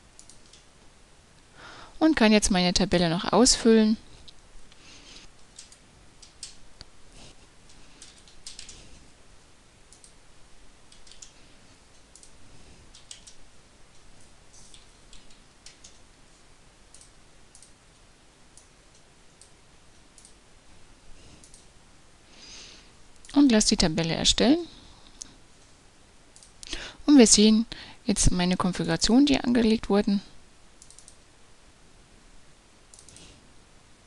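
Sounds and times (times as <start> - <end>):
computer keyboard typing: 0.2 - 0.7, 5.4 - 6.6, 7.7 - 8.9, 9.9 - 10.2, 10.9 - 14.0, 14.6 - 16.0, 30.8 - 31.2, 32.9 - 33.3.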